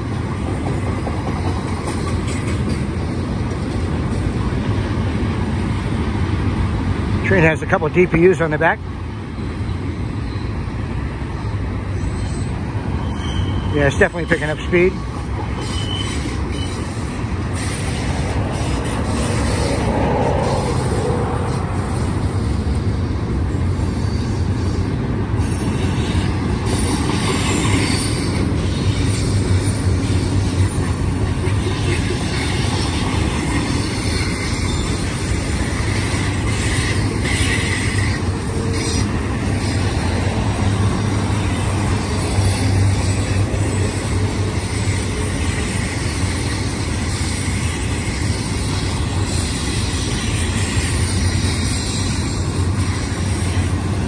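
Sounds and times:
freight train wheels rumbling: 0.0s - 54.0s
wheel squeal: 11.9s - 14.4s, 15.5s - 20.7s, 23.5s - 31.0s, 31.7s - 40.2s.

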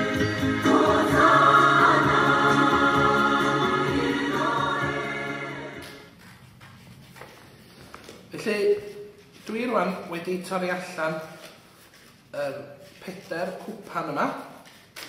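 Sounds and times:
choir singing: 0.0s - 6.1s.

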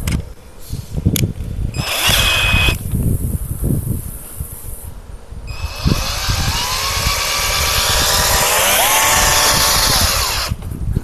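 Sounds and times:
cordless drill spinning brush: 1.8s - 3.0s, 5.5s - 10.6s.

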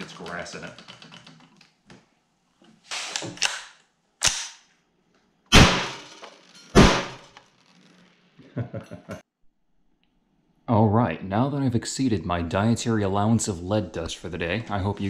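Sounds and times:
gunshots indoors: 3.4s - 4.7s, 5.5s - 6.0s, 6.8s - 7.2s
gun rattling: 5.9s - 8.2s.

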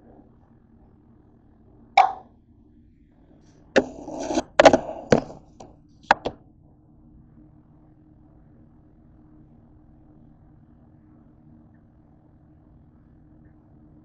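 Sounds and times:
faint low hum: 0.0s - 14.0s
rubbing on counter: 3.8s - 5.6s
camera handling knocks: 6.1s - 6.4s.

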